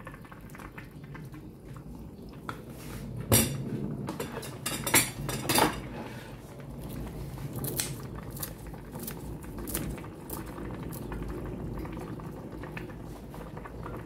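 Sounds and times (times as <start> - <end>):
kitchenware clinking: 3.3 - 6.0.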